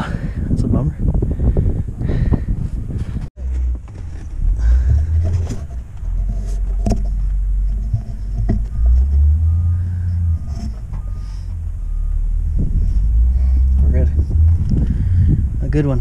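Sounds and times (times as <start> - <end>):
low rumble: 0.0 - 16.0
faint short beeps: 8.7 - 12.3.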